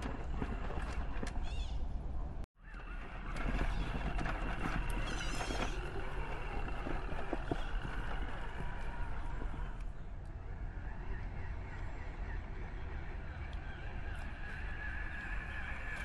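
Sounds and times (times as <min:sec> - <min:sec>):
toy truck knocks and clatter: 0:02.6 - 0:09.8
electric motor whine: 0:02.6 - 0:09.9.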